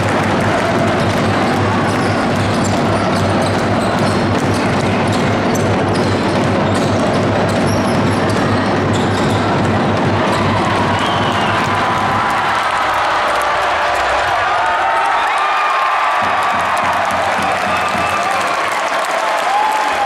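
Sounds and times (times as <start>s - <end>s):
crowd din: 0.0s - 20.0s
ball bouncing on court: 0.2s - 12.4s, 16.2s - 18.3s
shoe squeaks: 2.0s - 9.6s.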